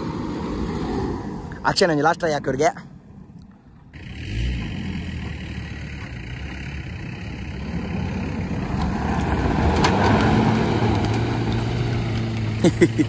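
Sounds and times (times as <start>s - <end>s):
diesel engine running: 3.8s - 13.0s.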